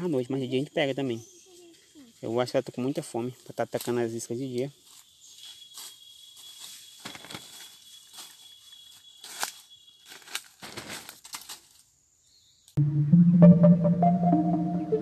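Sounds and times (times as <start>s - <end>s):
dry leaves rustling and crackling: 3.4s - 11.8s.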